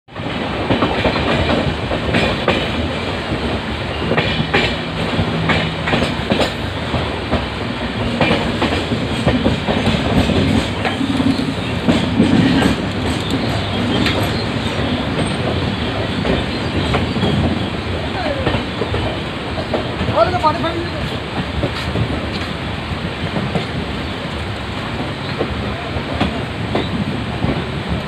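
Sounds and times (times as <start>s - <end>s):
electric train rumbling past: 0.1s - 28.0s
wheels clicking over rail joints: 0.2s - 22.6s.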